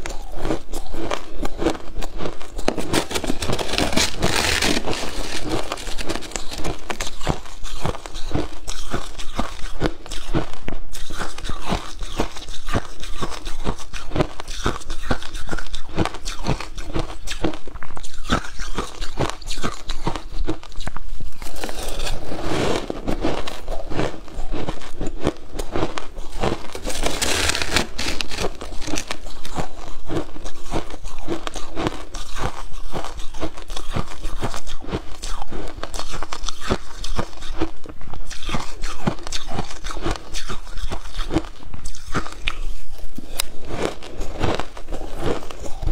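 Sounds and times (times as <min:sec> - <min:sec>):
chewing shaved ice: 0:00.0 - 0:45.9
metal spoon scraping ice: 0:00.1 - 0:09.5, 0:21.3 - 0:23.7, 0:26.2 - 0:29.9.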